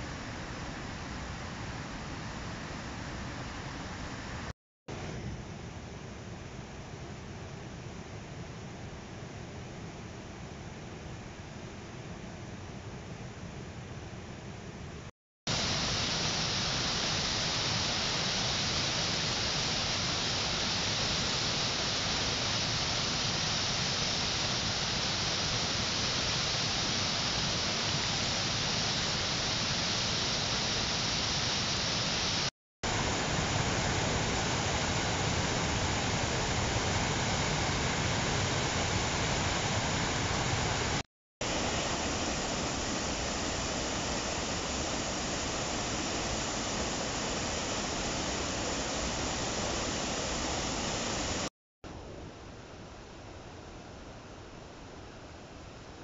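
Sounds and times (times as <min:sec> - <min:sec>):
water rushing through spillway: 0:15.5 - 0:51.5.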